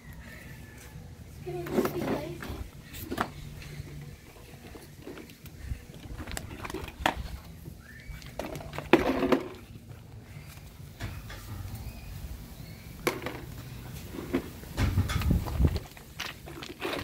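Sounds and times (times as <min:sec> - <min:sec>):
rocks clacking and knocking: 0:14.2 - 0:17.0.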